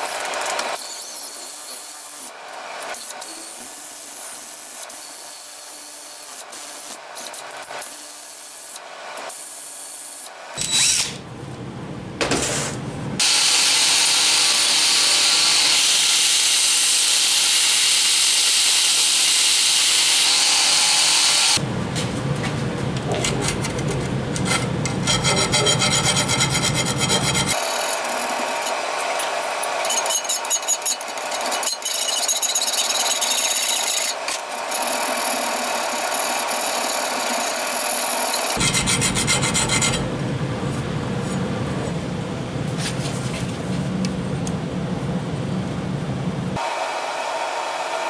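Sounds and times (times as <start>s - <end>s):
tools scraping steel: 10.6s - 11.2s, 23.1s - 34.9s.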